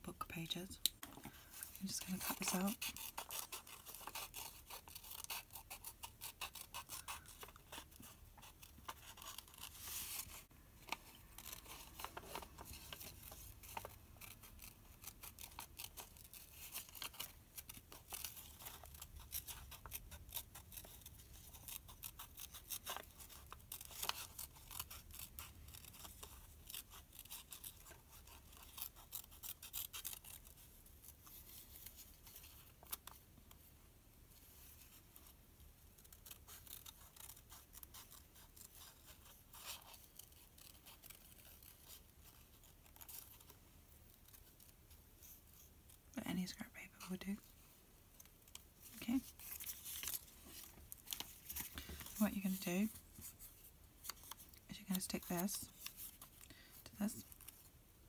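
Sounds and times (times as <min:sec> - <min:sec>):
scissors snipping paper: 0:01.8 - 0:33.2, 0:36.0 - 0:43.5.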